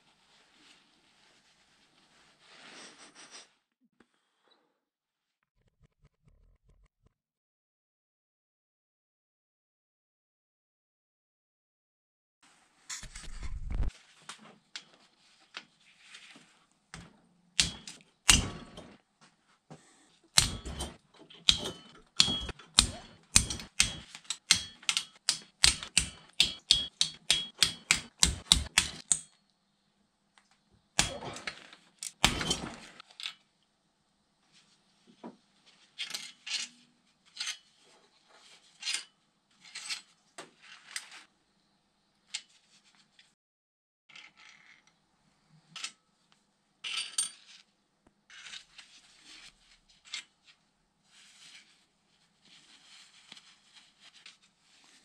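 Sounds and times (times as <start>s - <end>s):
hand ratchet clicking: 21.5s - 29.3s.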